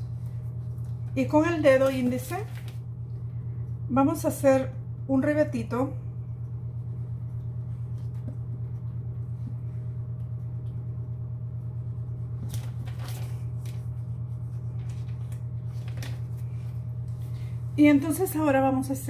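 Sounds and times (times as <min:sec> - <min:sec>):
low electrical hum: 0:00.0 - 0:19.0
plastic sheet crinkling: 0:00.1 - 0:02.9, 0:12.4 - 0:16.9.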